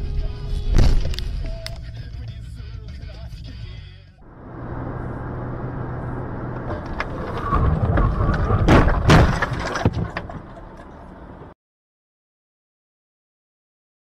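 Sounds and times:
car road and engine noise: 3.1 - 11.6
loud collision bangs: 6.5 - 11.5.

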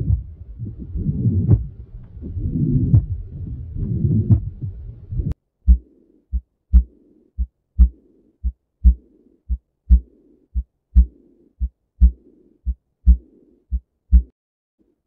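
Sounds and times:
heart murmur rushing noise: 0.0 - 5.8
heartbeat: 0.0 - 14.4.

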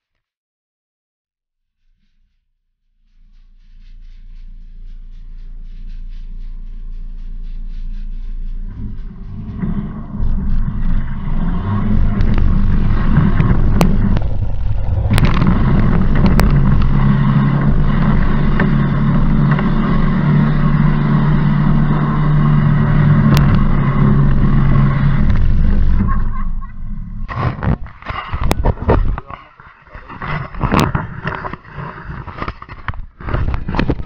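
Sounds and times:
off-road vehicle engine revving: 3.2 - 28.6.

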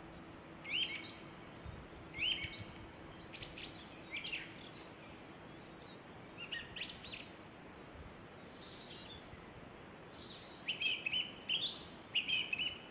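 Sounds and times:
songbird chirping: 0.0 - 12.9.

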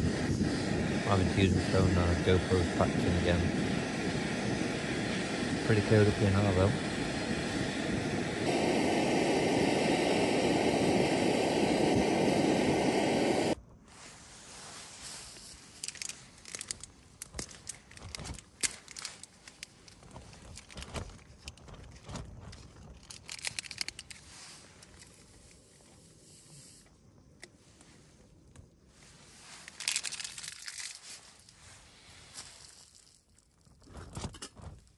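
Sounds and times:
sharp crackles: 13.4 - 27.5, 28.5 - 34.8
crinkling and rustling: 14.0 - 26.0, 27.7 - 34.9.

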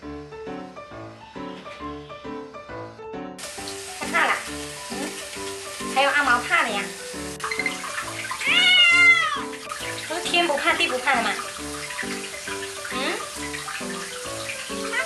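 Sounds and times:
background music: 0.0 - 15.0
running water hiss: 0.5 - 15.0
cat meowing: 8.3 - 9.6.

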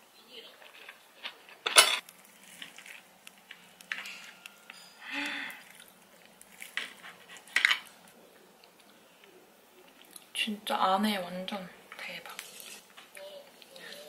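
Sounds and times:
cutlery clinking on a plate: 1.6 - 2.0, 3.9 - 5.0.

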